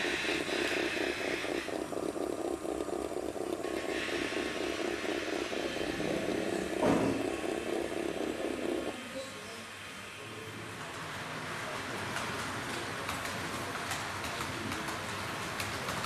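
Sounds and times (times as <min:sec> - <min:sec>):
electric motor whirring: 0:00.0 - 0:09.0
fast even clatter: 0:00.0 - 0:09.0, 0:10.9 - 0:16.0.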